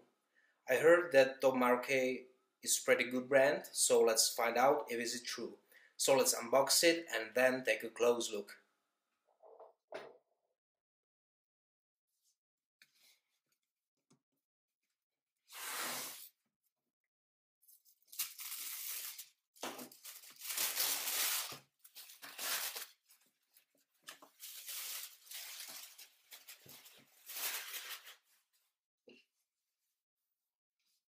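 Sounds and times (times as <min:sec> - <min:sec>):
packing paper and tape ripping: 0:18.0 - 0:23.2, 0:24.1 - 0:28.2.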